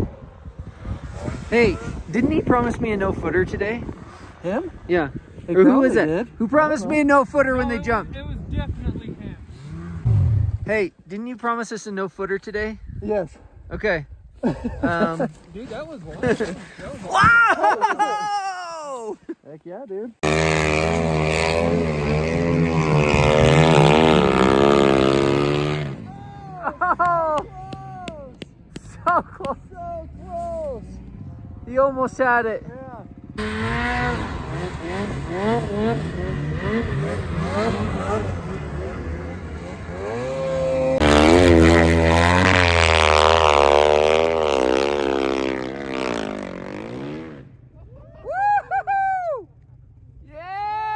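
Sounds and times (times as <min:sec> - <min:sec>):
snowmobile engine at high revs: 0:00.1 - 0:08.0, 0:08.8 - 0:10.7, 0:20.2 - 0:27.8, 0:33.2 - 0:47.5.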